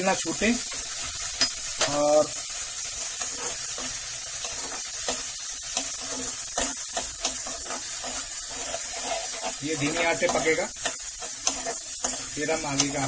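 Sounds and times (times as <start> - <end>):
masala sizzling in hot oil: 0.0 - 13.0
spoon scraping and tapping pan: 3.2 - 13.0.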